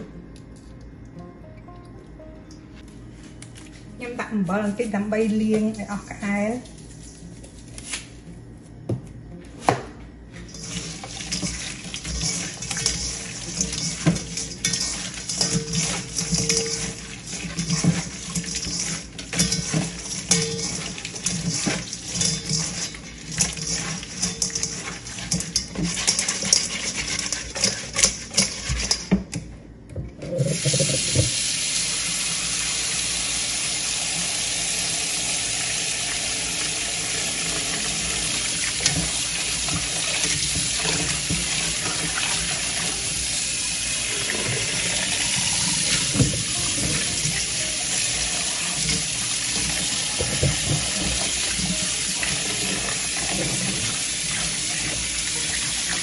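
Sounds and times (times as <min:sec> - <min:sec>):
faucet water running into bowl: 0:10.5 - 0:29.0, 0:30.4 - 0:56.0.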